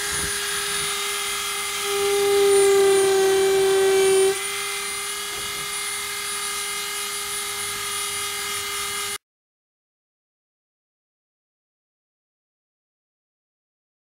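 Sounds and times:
rotary tool engraving wood: 0.0s - 9.2s.

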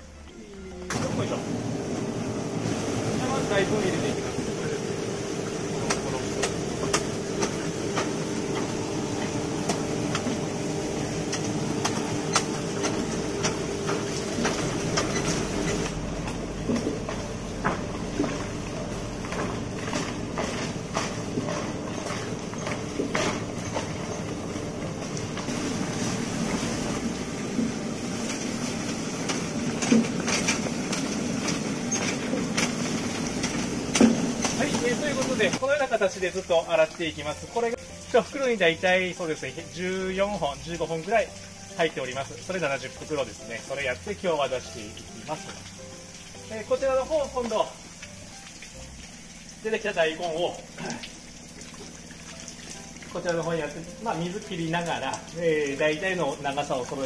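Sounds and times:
machine mechanical hum: 0.0s - 38.5s.

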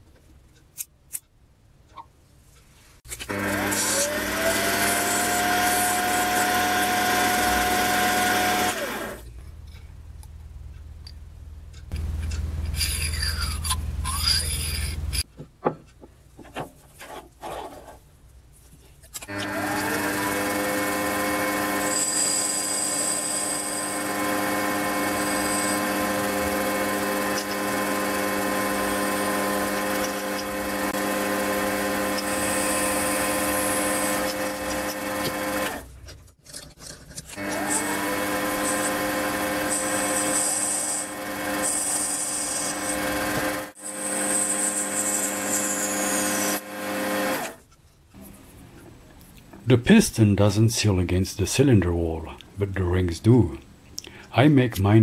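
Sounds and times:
metal lathe motor running: 3.3s - 9.2s, 19.3s - 35.8s, 37.4s - 47.6s
knocks: 15.3s - 16.8s.

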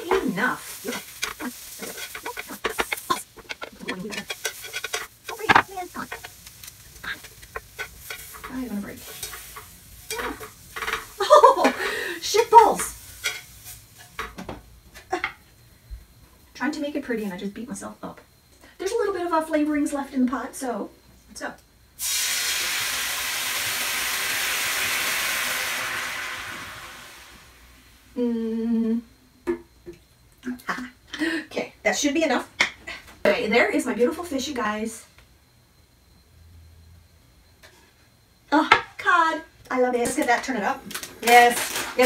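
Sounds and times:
chopsticks and tongs tapping pot: 0.1s - 9.4s
water pouring into a pot: 22.0s - 27.8s.

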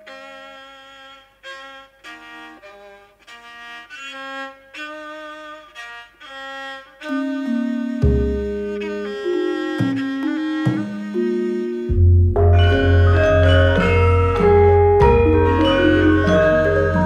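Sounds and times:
bowed fiddle slow melody: 0.0s - 17.0s
gamelan ensemble: 7.4s - 17.0s.

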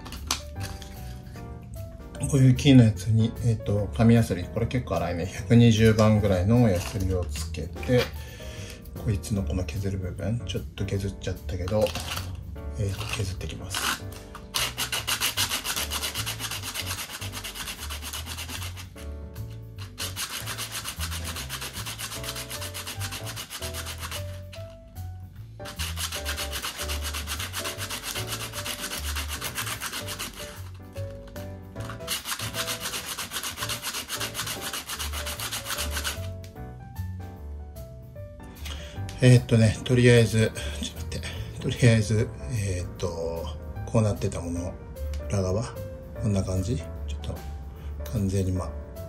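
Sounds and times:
metal ring rubbed on sandpaper: 13.0s - 24.8s, 25.6s - 30.8s, 31.8s - 36.3s.

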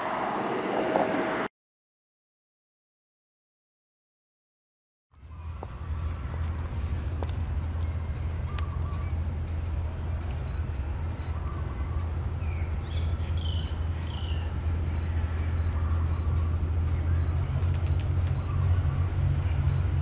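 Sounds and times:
diesel locomotive drone: 0.0s - 1.5s, 5.2s - 20.0s
birds chirping: 5.2s - 20.0s.

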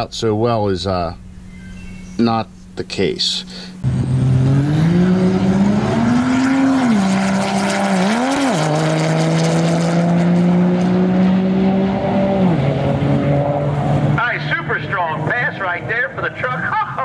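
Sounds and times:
diesel pickup engine at full throttle: 3.7s - 17.0s.

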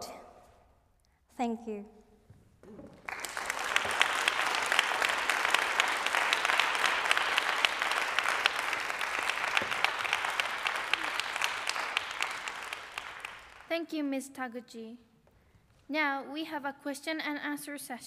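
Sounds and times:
audience applauding: 2.9s - 13.7s.

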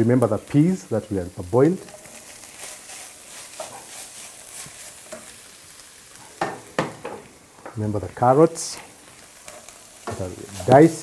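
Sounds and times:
meat sizzling in a frying pan: 0.0s - 11.0s
wooden spoon stirring: 1.9s - 5.3s.

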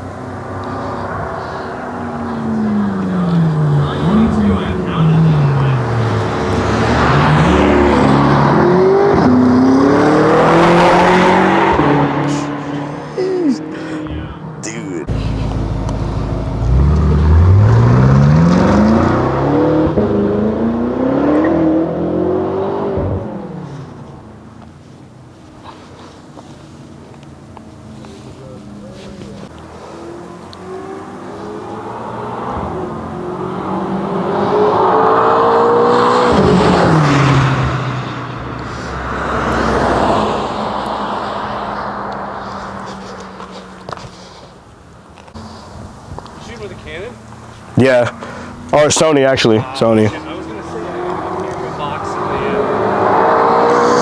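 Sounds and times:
car exhaust accelerating: 0.0s - 13.0s, 15.1s - 24.3s
car engine accelerating hard: 0.0s - 14.3s, 15.0s - 24.1s, 27.8s - 44.2s, 46.4s - 54.0s.

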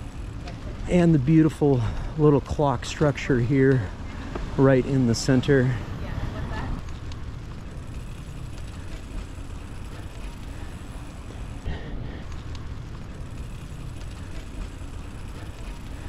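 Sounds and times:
street ambience rumble: 0.0s - 16.0s.

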